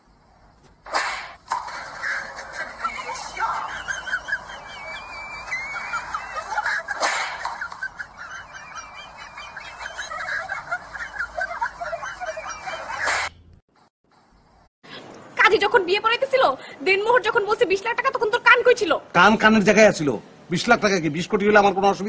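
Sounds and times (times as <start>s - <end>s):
sharp smack: 0.9s - 1.6s, 7.0s - 7.5s
birds chirping: 1.4s - 14.7s.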